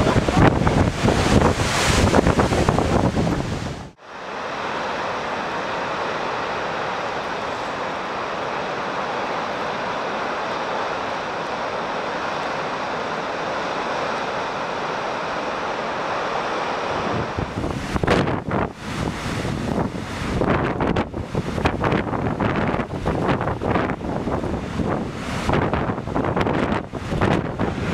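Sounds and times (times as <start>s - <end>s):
wind buffeting microphone: 0.0s - 4.0s, 16.7s - 27.9s
surf churning against rocks: 0.0s - 27.9s.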